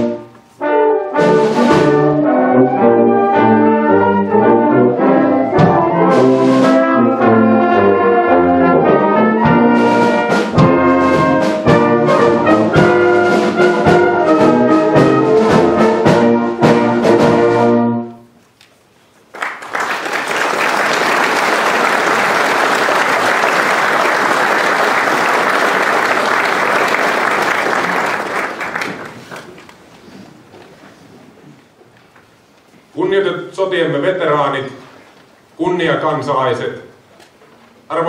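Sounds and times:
brass ensemble playing: 0:00.0 - 0:18.4
audience applauding: 0:19.3 - 0:29.8.

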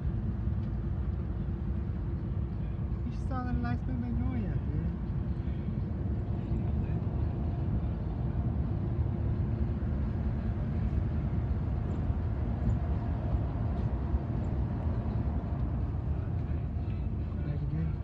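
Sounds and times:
car interior road rumble: 0:00.0 - 0:18.0.

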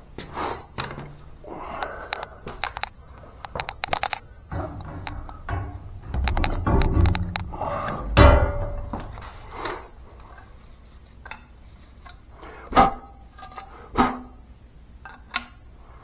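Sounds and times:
ringing metallic knocks: 0:04.5 - 0:09.3.

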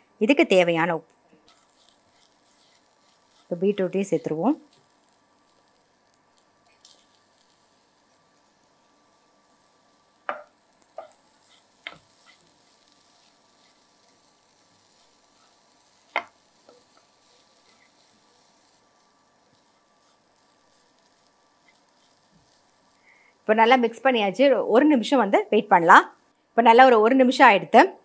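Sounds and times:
faint sizzle: 0:00.0 - 0:28.0
spatula stirring in frying pan: 0:01.3 - 0:23.5.

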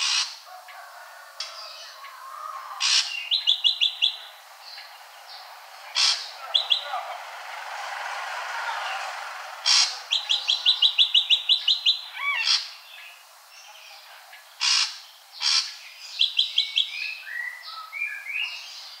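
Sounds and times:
harsh bird calls: 0:00.0 - 0:19.0.

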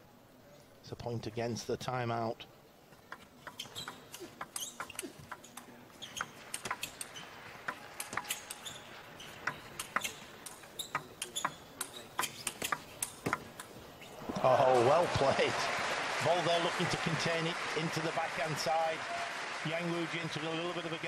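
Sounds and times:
table tennis ball clicking: 0:03.1 - 0:13.7
shoes squeaking on floor: 0:03.4 - 0:14.3.

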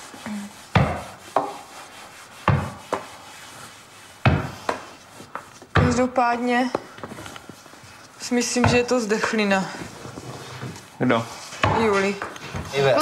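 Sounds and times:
hard knocks on wood: 0:04.2 - 0:04.8, 0:05.7 - 0:06.1, 0:08.6 - 0:08.9.

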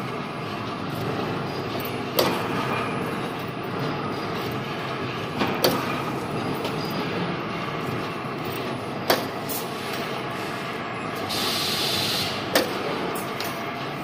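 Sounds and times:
wire bending machine running: 0:00.0 - 0:14.0.

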